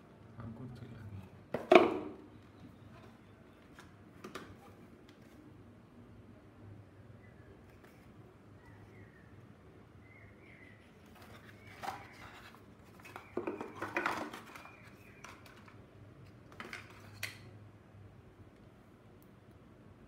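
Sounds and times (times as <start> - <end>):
cardboard packaging rustling: 11.0 - 15.8.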